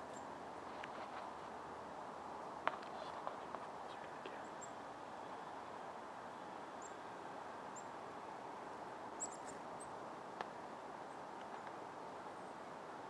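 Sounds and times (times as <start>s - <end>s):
outdoor background noise: 0.0s - 13.0s
high songbird chirps: 3.9s - 4.8s, 9.2s - 10.0s.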